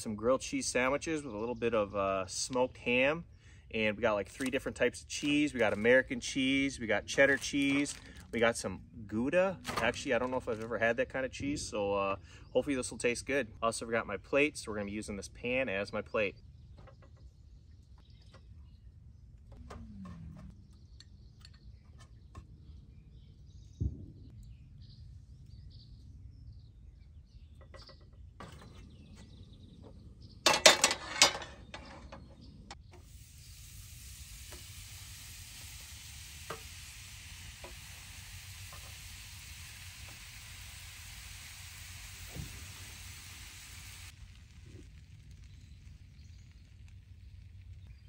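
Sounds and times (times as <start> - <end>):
sandwiches sizzling in pan: 4.2 - 8.4, 32.7 - 48.0.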